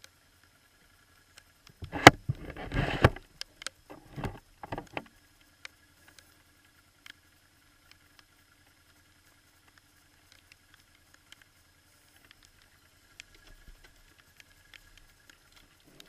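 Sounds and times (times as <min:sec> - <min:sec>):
faint steady hum: 0:00.0 - 0:16.0
camera handling rustling and scraping: 0:01.8 - 0:03.2
camera rubbing and clicking: 0:01.8 - 0:03.3, 0:03.9 - 0:05.0.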